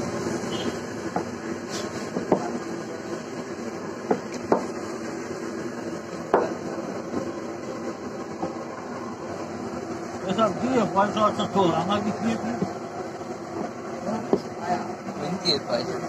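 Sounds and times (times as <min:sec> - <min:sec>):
steady background hum: 0:00.0 - 0:16.0
knocks on wooden table: 0:01.1 - 0:01.4, 0:02.1 - 0:02.6, 0:04.0 - 0:04.7, 0:06.3 - 0:06.6.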